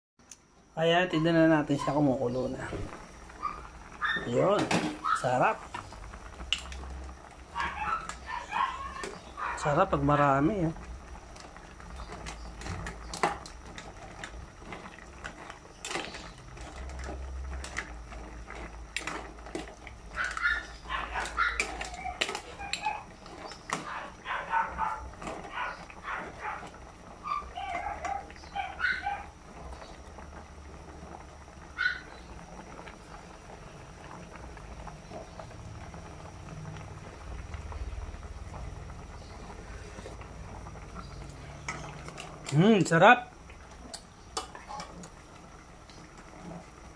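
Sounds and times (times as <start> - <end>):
soup boiling in pot: 0.4 - 46.9
animal calls: 7.5 - 9.6, 20.1 - 29.4
ladle clicking against pot: 21.2 - 23.9.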